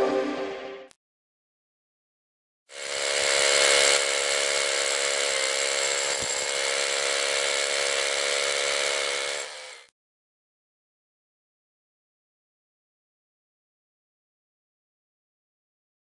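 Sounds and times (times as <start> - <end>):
power drill boring into rock: 2.7 - 9.9.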